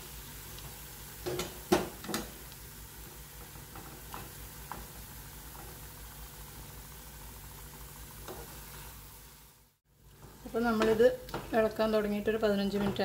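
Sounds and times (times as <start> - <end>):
spoon knocking against pan: 1.2 - 2.4.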